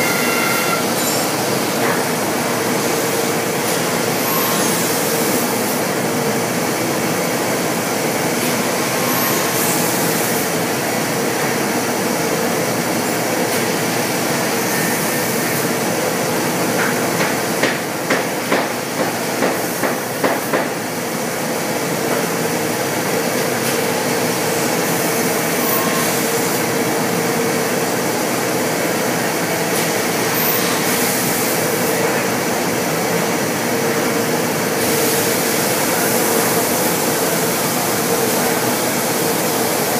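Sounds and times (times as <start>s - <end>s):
machine cutting wood: 0.0s - 1.2s.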